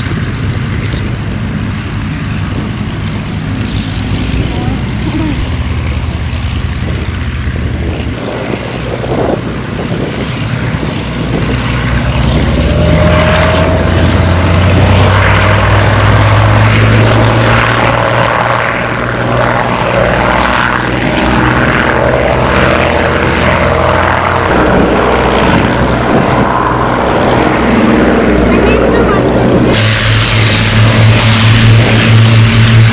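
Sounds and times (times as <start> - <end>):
propeller aircraft engines running: 0.0 - 32.9.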